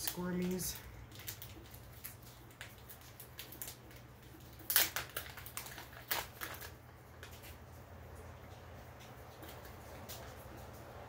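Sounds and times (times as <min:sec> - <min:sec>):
plastic bag crinkling: 0:00.0 - 0:07.6.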